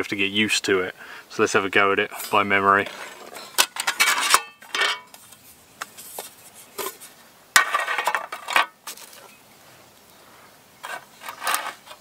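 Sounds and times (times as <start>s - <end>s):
metal rattling: 2.2s - 5.2s
metal table panels clanking: 2.9s - 5.1s.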